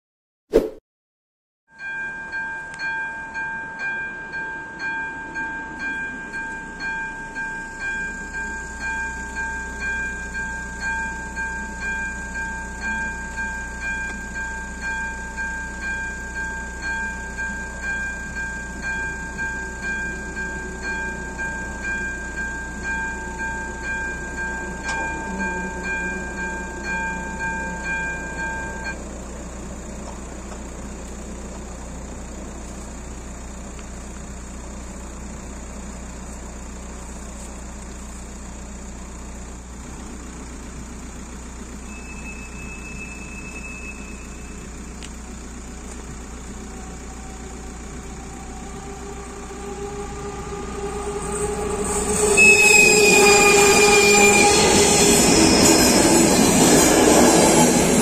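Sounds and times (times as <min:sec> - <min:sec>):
level crossing bell ringing: 0:01.7 - 0:29.0, 0:41.6 - 0:47.8.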